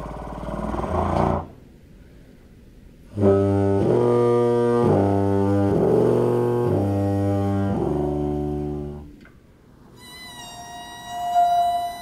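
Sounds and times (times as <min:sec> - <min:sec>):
trombone playing low notes: 0:03.1 - 0:09.2.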